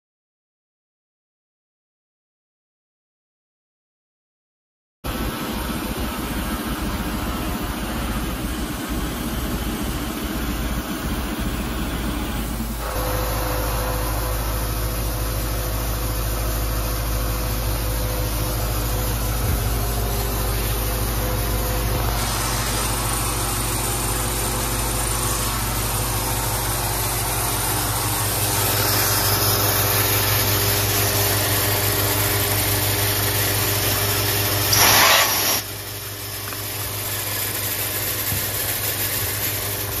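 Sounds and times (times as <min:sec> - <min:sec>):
milling machine motor hum: 0:05.1 - 0:34.9
brief loud hissing: 0:21.8 - 0:24.0, 0:34.6 - 0:35.8.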